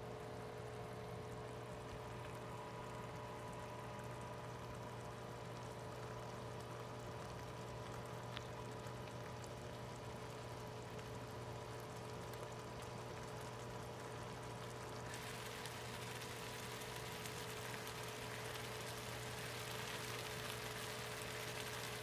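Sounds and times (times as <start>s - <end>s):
sauce bubbling and popping: 0.3s - 22.0s.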